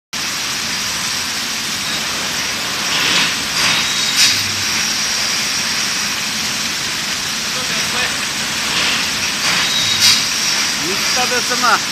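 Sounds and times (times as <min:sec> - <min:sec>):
bottle washing machine hissing: 0:00.2 - 0:11.9
sharp machine knocks: 0:01.9 - 0:05.3.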